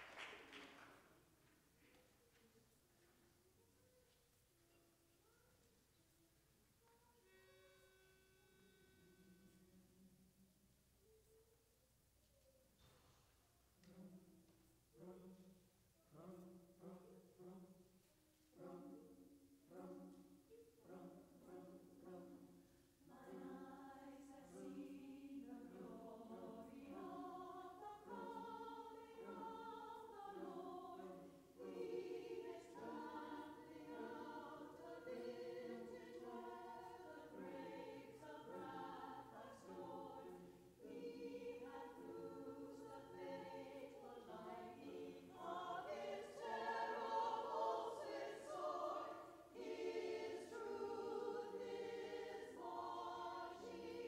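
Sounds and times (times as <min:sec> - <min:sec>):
women's choir singing a hymn: 0:20.8 - 0:54.0.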